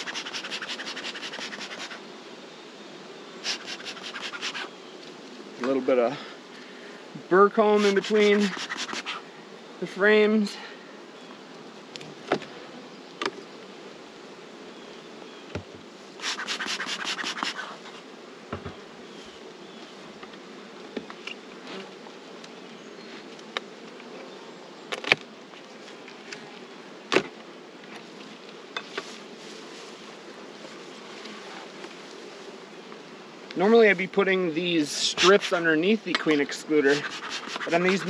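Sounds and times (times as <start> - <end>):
hive tool scraping frames: 0.0 - 2.1, 3.4 - 5.9, 7.4 - 9.2, 15.6 - 24.3, 24.9 - 38.0
honeybees buzzing: 0.0 - 38.0
hive tool knocking on wood: 15.5 - 15.8, 18.5 - 18.8, 27.1 - 27.4.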